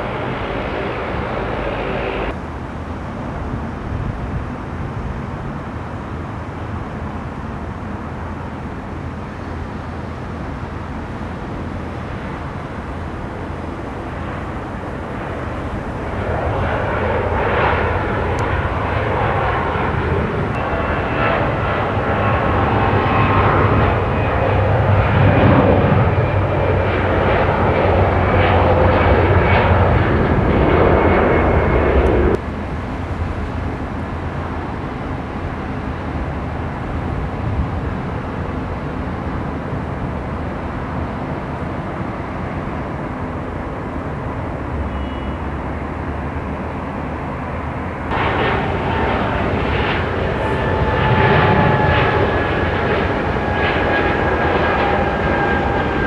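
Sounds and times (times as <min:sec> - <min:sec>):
jet engines running loud: 0:00.0 - 0:56.0
quieter steady jet engine noise: 0:00.0 - 0:56.0.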